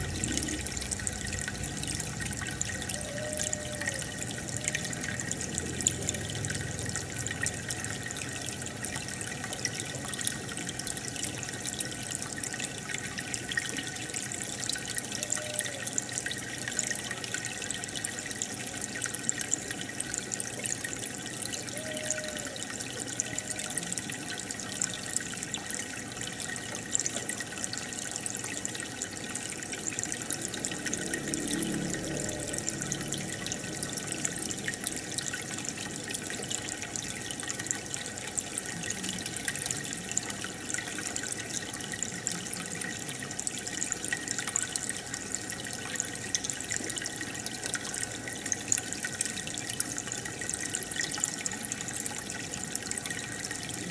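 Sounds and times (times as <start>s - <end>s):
aquarium air bubbling: 0.0s - 9.3s, 29.0s - 37.0s.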